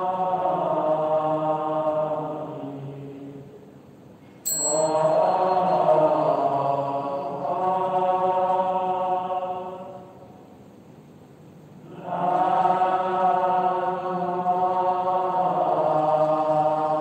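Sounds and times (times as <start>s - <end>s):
held chanted syllable: 0.0s - 3.6s, 4.5s - 10.4s, 11.8s - 17.0s
ringing metallic strike: 4.5s - 7.4s.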